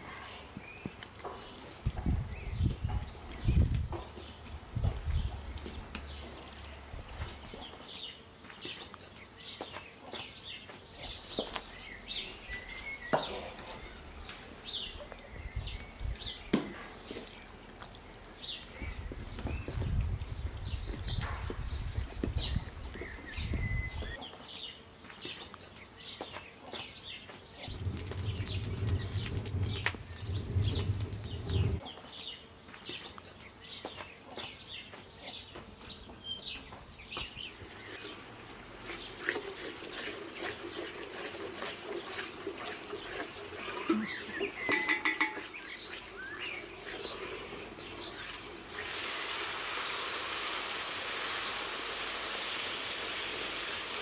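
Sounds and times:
small birds chirping: 0:00.1 - 0:48.9
low rumble: 0:27.7 - 0:31.8
syrup boiling in a pan: 0:27.7 - 0:31.8, 0:37.6 - 0:54.0
wooden spoon stirring: 0:38.8 - 0:48.4.

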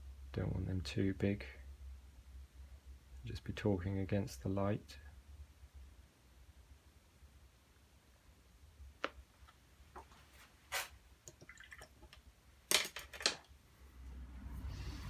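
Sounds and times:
brush rinsing in water: 0:11.3 - 0:12.2.

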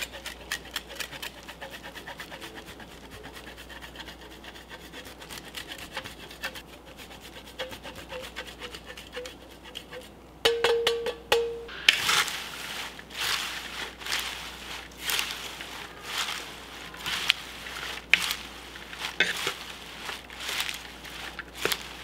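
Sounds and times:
faint scraping: 0:11.7 - 0:22.0
salad leaves rustling in bowl: 0:11.9 - 0:22.0.

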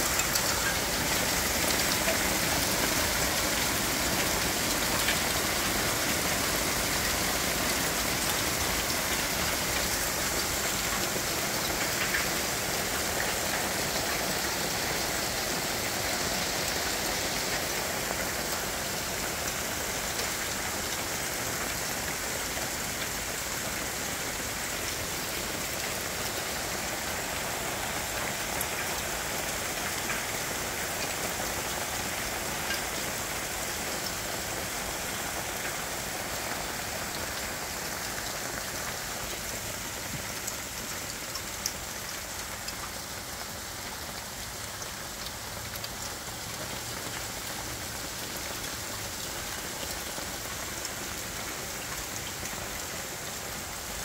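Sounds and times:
hailstones ticking on hard surfaces: 0:00.0 - 0:22.2.

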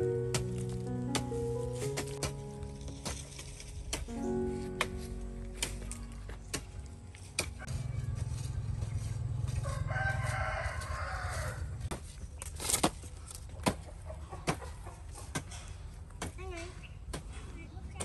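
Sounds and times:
rooster crowing: 0:07.6 - 0:11.8.

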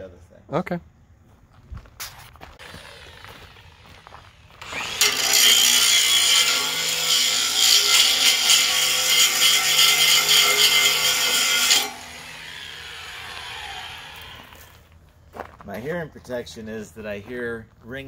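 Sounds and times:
grinder motor whining freely: 0:02.6 - 0:14.7
angle grinder grinding steel: 0:02.6 - 0:14.8.

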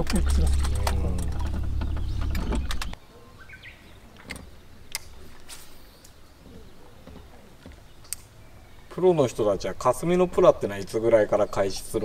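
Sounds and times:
low rumble: 0:00.0 - 0:03.0.

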